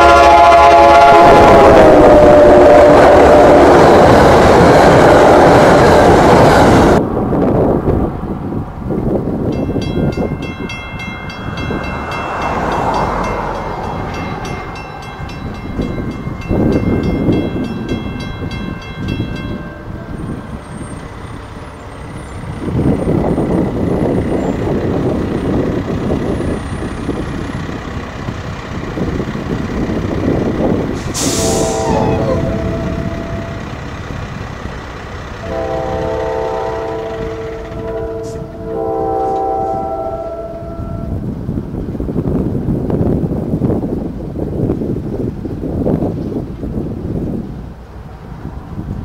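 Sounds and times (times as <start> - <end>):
train horn blasts: 0.0 - 6.1, 31.0 - 33.9, 35.4 - 41.3
train rumble: 0.0 - 49.0
railroad crossing bell ringing: 9.5 - 28.1, 30.6 - 41.3.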